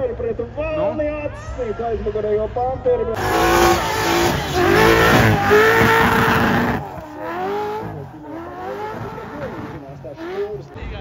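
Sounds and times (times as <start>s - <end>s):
race car engine revving: 3.2s - 11.0s.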